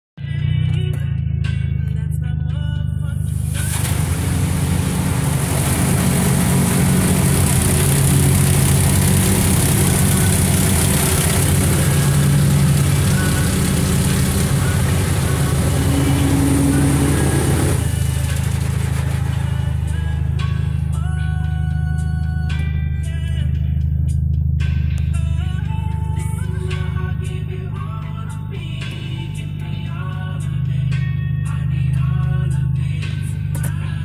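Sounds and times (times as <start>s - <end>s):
low rumble: 3.1s - 21.6s
water spray hitting car: 3.2s - 19.9s.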